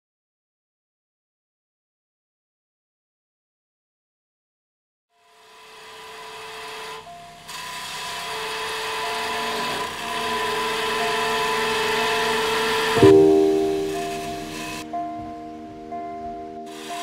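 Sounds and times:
wood lathe turning tool cutting: 5.2s - 14.8s, 16.7s - 17.0s.

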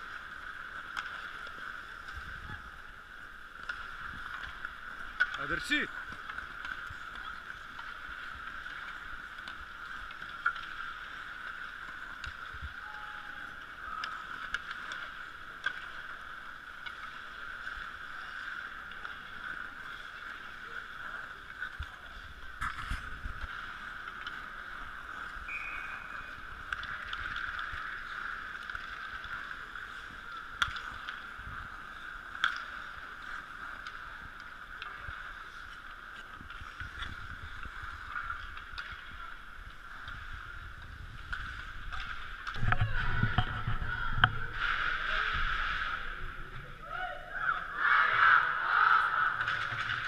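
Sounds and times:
hockey sticks and puck clacking: 0.1s - 2.2s, 3.5s - 12.9s, 13.6s - 20.7s, 21.4s - 40.2s, 40.8s - 44.4s, 49.4s - 50.0s.

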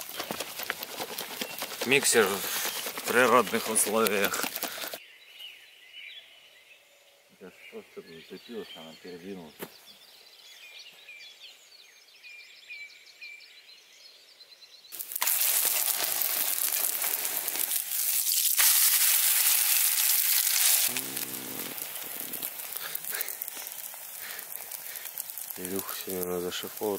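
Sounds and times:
pancake batter sizzling: 0.0s - 5.0s, 14.9s - 26.9s.

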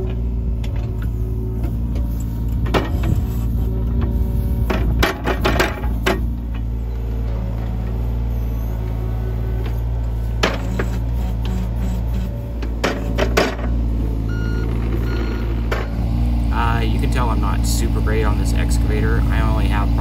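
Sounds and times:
excavator diesel engine running: 0.0s - 20.0s
excavator bucket knocking: 4.7s - 6.3s, 12.7s - 13.8s.

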